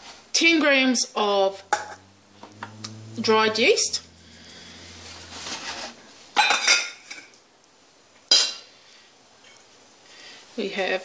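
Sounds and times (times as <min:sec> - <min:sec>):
metal bowls clinking: 0:01.6 - 0:07.3.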